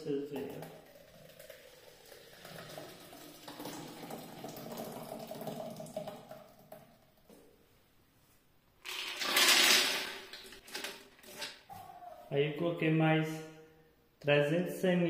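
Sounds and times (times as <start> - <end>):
batter pouring and splattering: 0.4 - 6.8.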